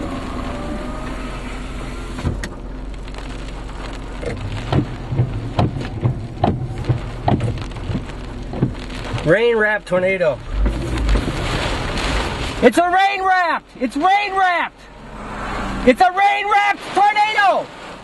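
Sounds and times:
heavy raindrops pelting a car roof: 0.0s - 18.0s
wind-driven rain rushing: 0.0s - 18.0s.

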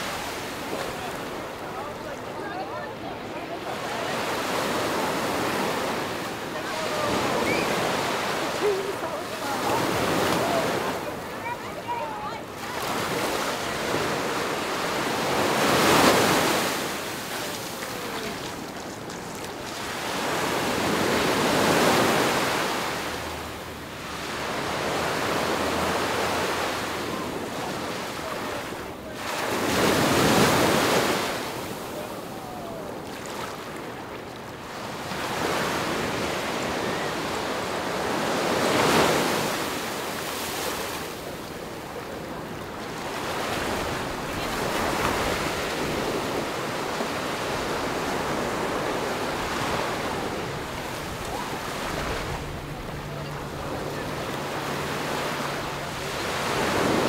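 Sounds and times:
ocean waves breaking on shore: 0.0s - 57.0s.

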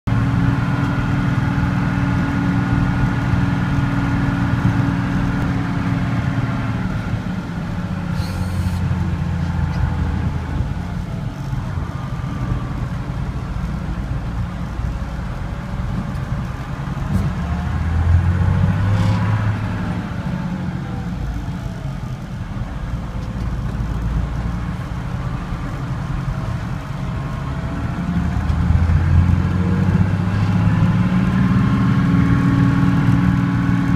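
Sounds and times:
diesel truck engine under load: 0.1s - 33.9s
short hiss: 8.1s - 8.9s.

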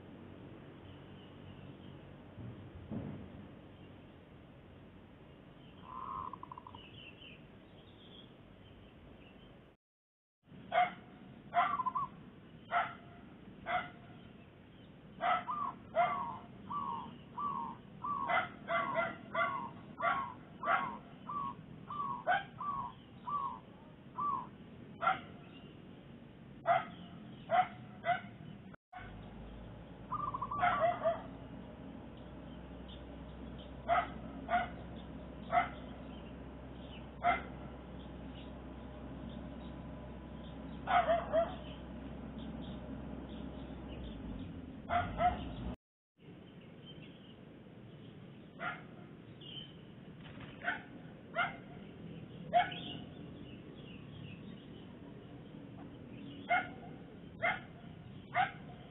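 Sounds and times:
dog barking: 10.7s - 11.9s, 12.7s - 14.0s, 15.2s - 16.4s, 18.2s - 21.1s, 22.2s - 22.6s, 25.0s - 25.4s, 26.6s - 28.4s, 30.5s - 31.3s, 33.8s - 34.8s, 35.5s - 35.9s, 37.2s - 37.6s, 40.8s - 41.7s, 44.8s - 45.6s, 48.6s - 48.9s, 50.6s - 51.7s, 52.5s - 53.0s, 56.4s - 58.9s.

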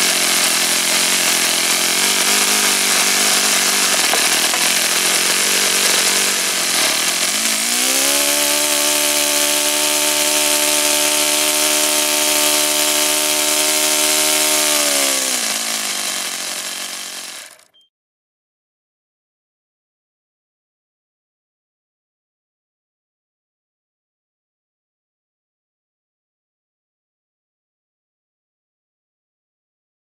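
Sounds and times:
model glow engine running: 0.0s - 17.7s.

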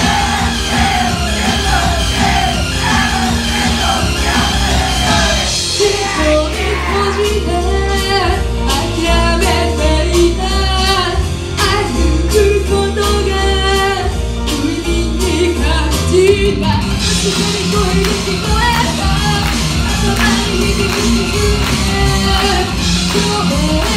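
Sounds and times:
backing track with heavy bass: 0.0s - 23.9s
woman singing into a microphone: 5.7s - 23.9s.

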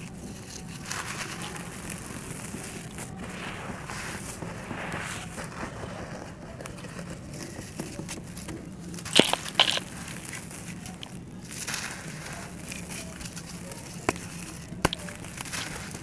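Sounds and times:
hands rubbing through dry sand: 0.0s - 6.5s, 9.0s - 16.0s
dry clump crumbling: 8.9s - 16.0s.

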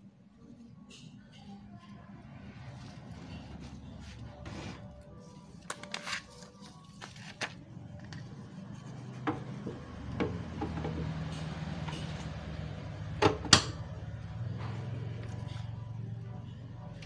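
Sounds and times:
plastic film rustling: 2.9s - 8.1s.

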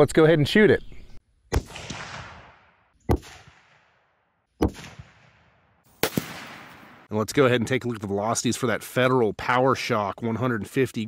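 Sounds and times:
rifle shots echoing: 1.5s - 7.1s.

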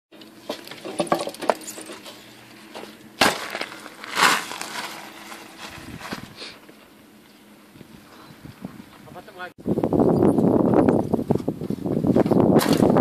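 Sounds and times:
bicycle on loose gravel: 0.4s - 6.9s.

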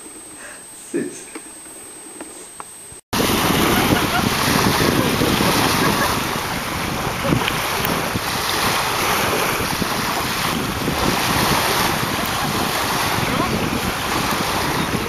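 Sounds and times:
wind buffeting microphone: 3.1s - 15.0s
small waves washing: 3.2s - 15.0s.

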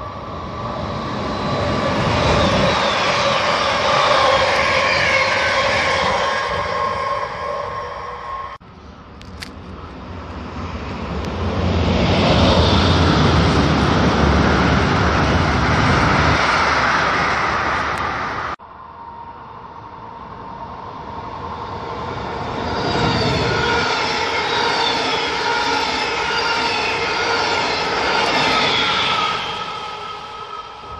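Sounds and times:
electric locomotive whining: 0.0s - 30.9s
train wheels rushing on rails: 21.2s - 30.9s.

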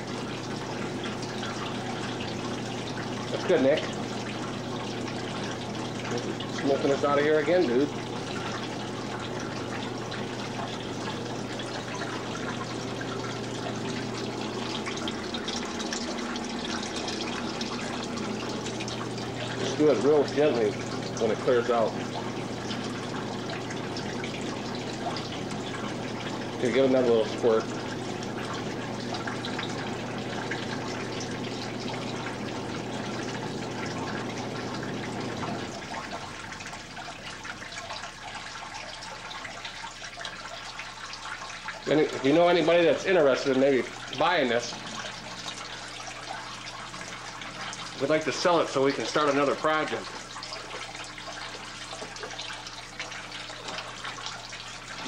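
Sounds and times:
fog machine humming: 0.0s - 38.3s, 41.8s - 55.0s
water trickling and splashing: 0.0s - 55.0s
fountain water splashing: 47.0s - 55.0s.

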